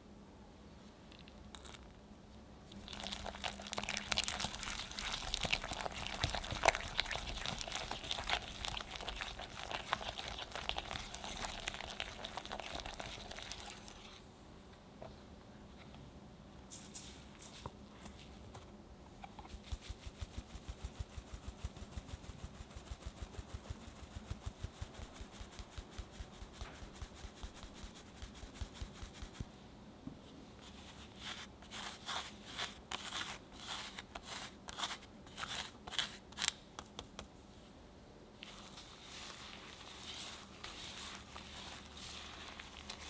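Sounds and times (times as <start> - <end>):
sieve scratching: 2.7 - 14.2, 38.4 - 43.0.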